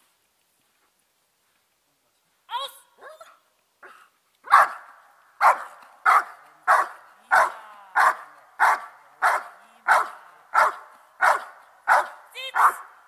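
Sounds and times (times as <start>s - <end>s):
dog barking: 3.8s - 13.0s.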